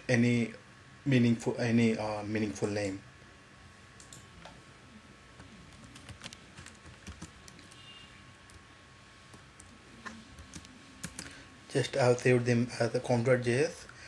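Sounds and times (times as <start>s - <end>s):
computer keyboard keystrokes: 5.8s - 7.9s, 10.4s - 11.3s.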